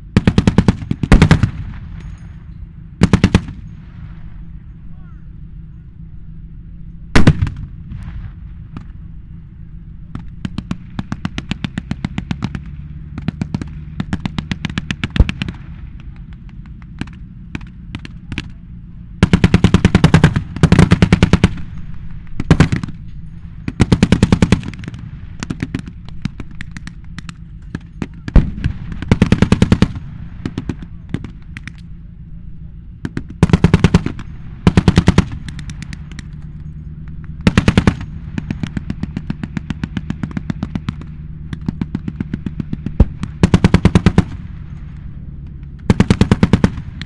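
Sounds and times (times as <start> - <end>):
steady low rumble: 0.0 - 47.0
machine-gun fire bursts: 0.1 - 1.8, 3.0 - 3.6, 10.2 - 15.8, 19.2 - 21.8, 22.4 - 23.0, 23.7 - 26.8, 27.7 - 31.4, 33.0 - 36.1, 37.4 - 44.5, 45.9 - 47.0.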